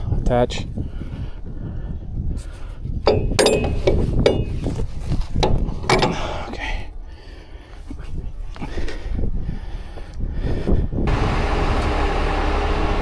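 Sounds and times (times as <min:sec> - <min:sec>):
metal cable clanking and rattling: 0:03.0 - 0:06.6.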